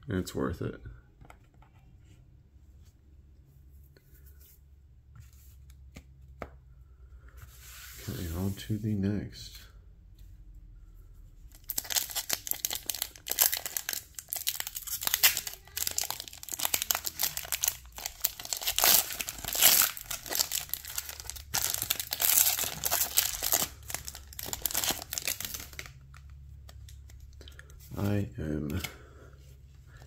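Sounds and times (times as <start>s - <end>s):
foil wrapper crinkling and tearing: 11.6s - 27.2s.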